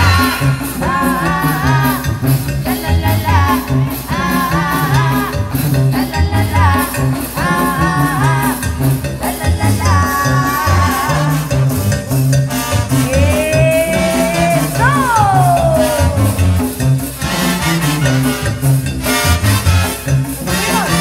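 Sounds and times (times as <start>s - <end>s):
banda band playing: 0.0s - 21.0s
drums and cymbals: 0.0s - 21.0s
tuba bass line: 0.0s - 21.0s.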